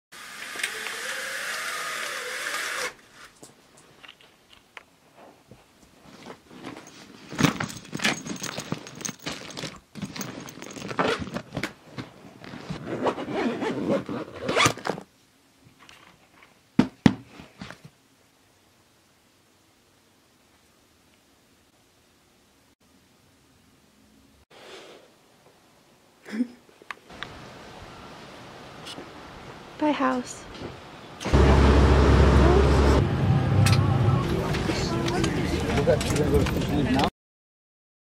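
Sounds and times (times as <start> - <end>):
scraping and rustling handling noise: 3.1 - 16.6.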